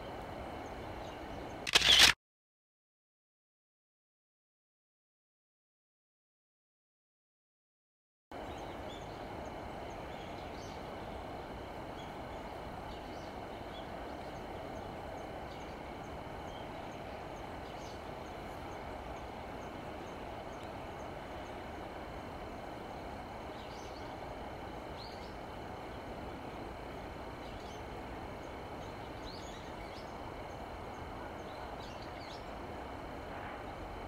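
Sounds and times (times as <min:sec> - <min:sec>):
distant traffic: 0:08.5 - 0:34.0.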